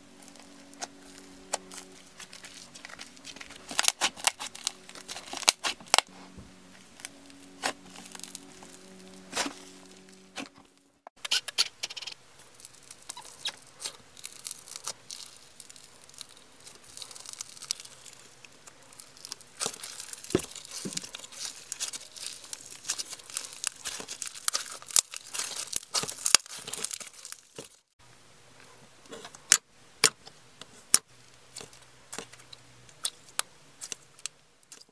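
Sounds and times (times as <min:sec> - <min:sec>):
slime crackling: 0:00.1 - 0:06.1, 0:06.8 - 0:10.5, 0:12.4 - 0:27.9.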